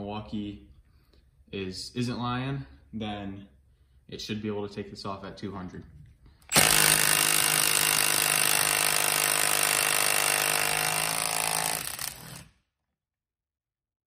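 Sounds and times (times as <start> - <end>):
impact wrench hammering on bolt: 6.5 - 12.4.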